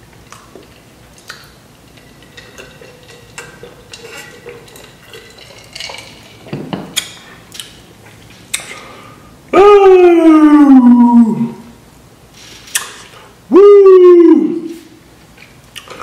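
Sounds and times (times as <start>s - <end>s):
glass jar clinking: 1.9s - 7.3s
glass jar knocking on table: 6.5s - 7.0s.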